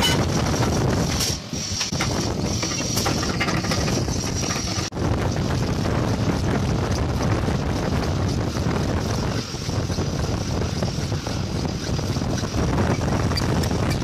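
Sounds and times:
milling machine boring metal: 1.8 - 5.0.

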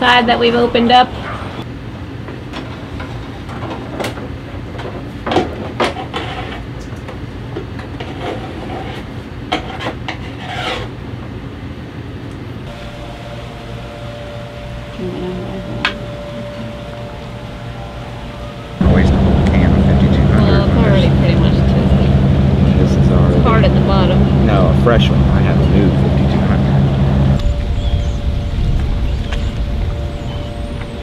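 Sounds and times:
steady low hum: 12.6 - 31.0.

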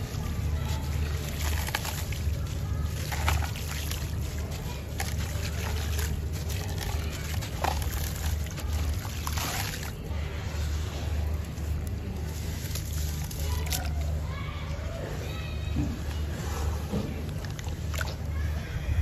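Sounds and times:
gritty crunching of cement chunks: 0.0 - 10.1.

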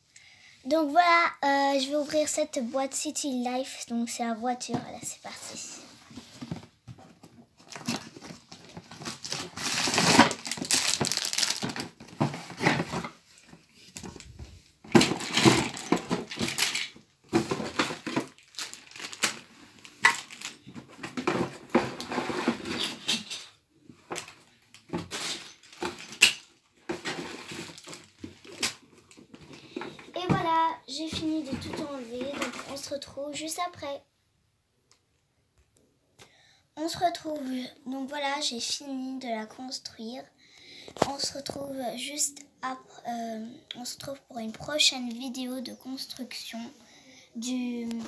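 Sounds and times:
cardboard and plastic bags crinkling: 5.6 - 32.9.

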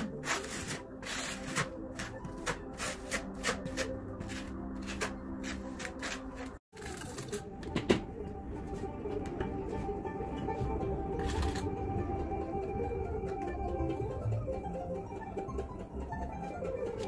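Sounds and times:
trowel scraping mortar: 0.0 - 7.0.

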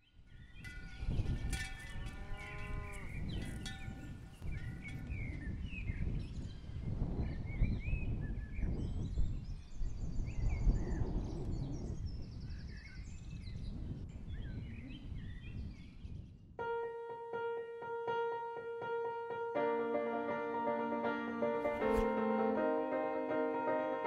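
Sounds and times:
small birds chirping: 0.0 - 16.3.

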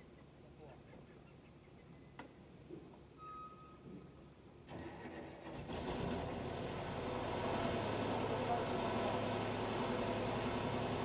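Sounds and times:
engine running: 4.7 - 11.0.

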